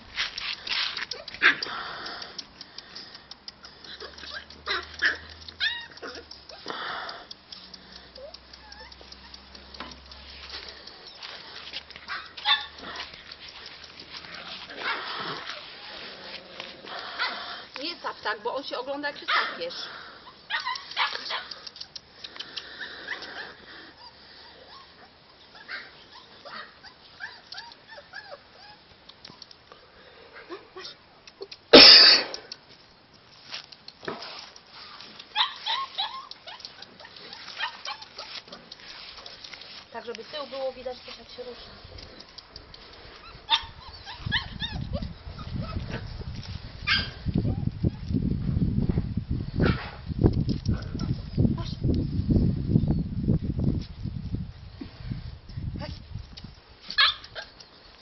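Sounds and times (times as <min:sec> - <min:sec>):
puppy squeak: 0:04.0 - 0:06.7, 0:08.2 - 0:09.4, 0:35.4 - 0:38.3, 0:43.2 - 0:46.0
puppy yip: 0:04.0 - 0:06.7, 0:08.2 - 0:09.4, 0:12.1 - 0:13.0, 0:20.5 - 0:21.6, 0:35.4 - 0:38.4, 0:43.2 - 0:46.1, 0:46.8 - 0:48.1, 0:56.9 - 0:57.6.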